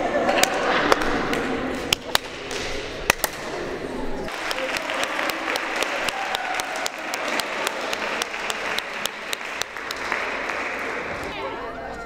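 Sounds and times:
close hands clapping sharply: 4.3s - 11.3s
group applauding: 4.3s - 11.4s.

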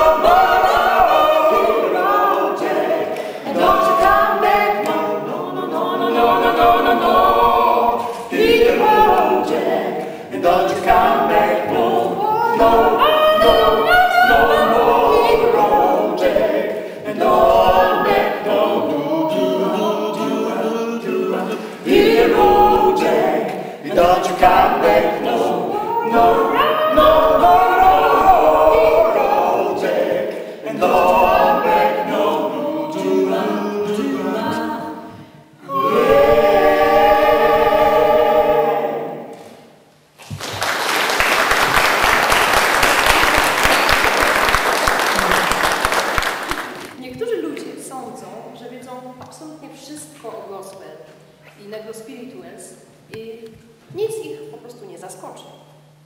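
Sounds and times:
vocal ensemble singing a cappella: 0.0s - 40.0s.

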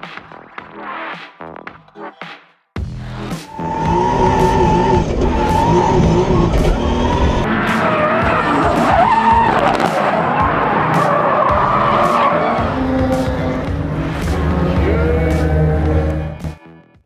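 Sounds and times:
car engines: 3.0s - 16.7s
tyres squealing: 3.4s - 16.4s.

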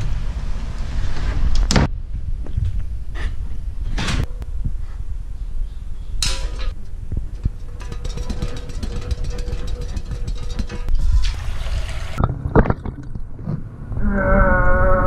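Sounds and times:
steady low rumble: 0.0s - 11.2s.

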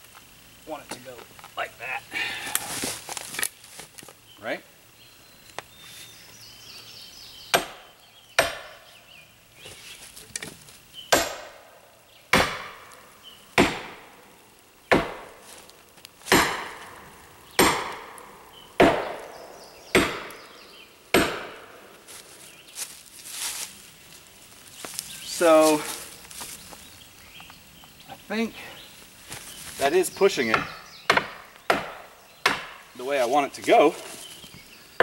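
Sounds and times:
sledgehammer striking steel wedge: 8.4s - 8.8s, 11.1s - 11.6s, 16.3s - 16.8s, 17.6s - 18.1s, 18.8s - 19.2s, 19.9s - 20.4s, 21.1s - 21.6s.

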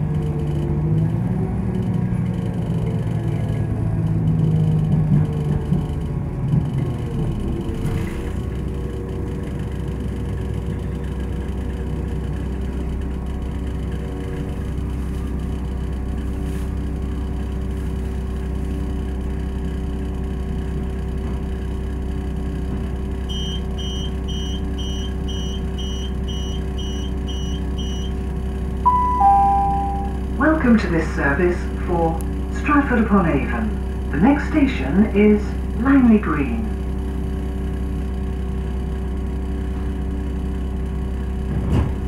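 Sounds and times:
diesel engine idling: 5.6s - 41.5s
door beeps: 23.3s - 28.2s, 28.9s - 30.2s
train whine slowing: 28.9s - 30.4s.

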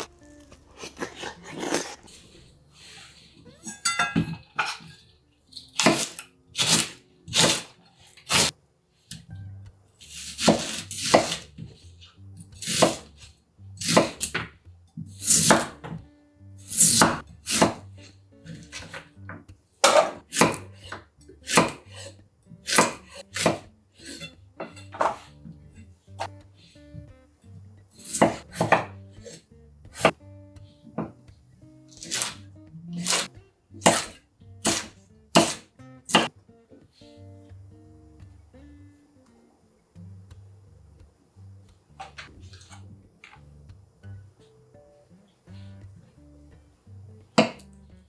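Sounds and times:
food crunch: 0.0s - 2.3s
knife chopping on wooden board: 10.4s - 11.4s, 16.8s - 17.8s, 19.8s - 21.8s, 22.7s - 23.7s, 28.1s - 29.4s, 33.0s - 36.3s, 47.4s - 47.6s.

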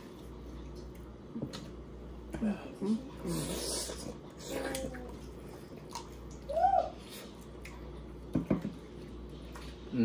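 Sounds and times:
wet slurping and sucking: 3.2s - 6.4s.

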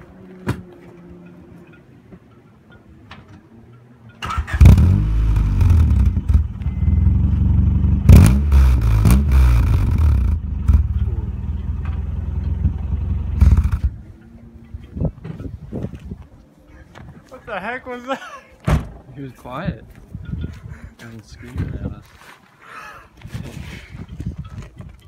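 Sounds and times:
car engine running loud: 4.6s - 14.0s.

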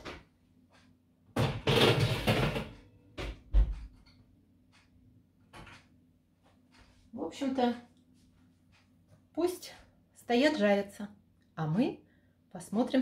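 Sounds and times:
oven door knocks: 1.4s - 3.9s
metal tray scraping and rattling: 1.6s - 2.9s.

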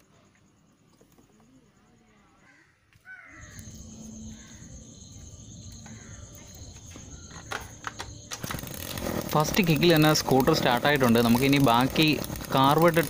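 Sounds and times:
crow cawing: 2.4s - 3.7s, 4.3s - 4.8s, 5.8s - 6.3s
two-stroke engine running: 7.4s - 13.0s.

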